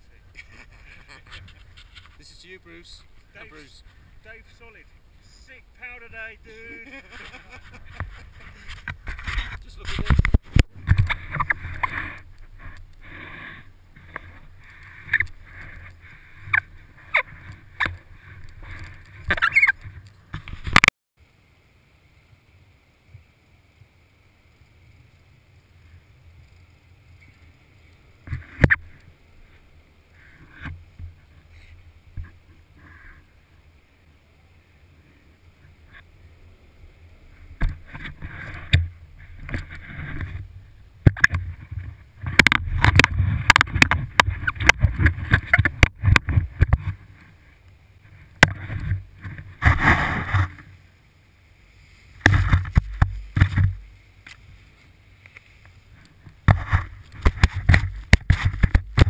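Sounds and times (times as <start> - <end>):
skis scraping through snow: 0.4 - 19.3, 46.3 - 50.9, 51.5 - 58.6.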